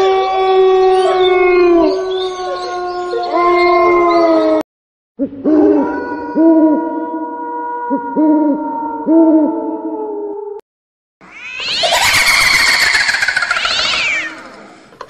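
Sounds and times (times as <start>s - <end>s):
drawn-out howls: 0.0s - 4.6s, 11.6s - 14.7s
owl hoots: 11.4s - 14.8s.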